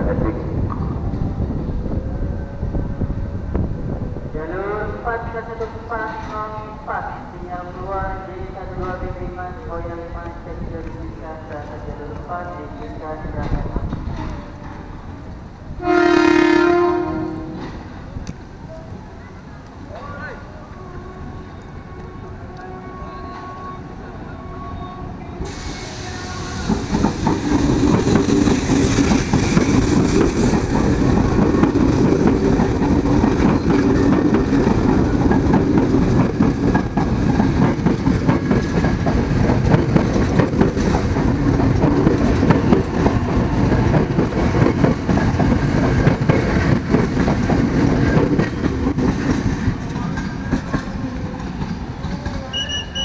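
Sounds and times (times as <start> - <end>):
electric train passing: 0.0 - 53.0
train wheels clattering over rail joints: 26.6 - 52.4.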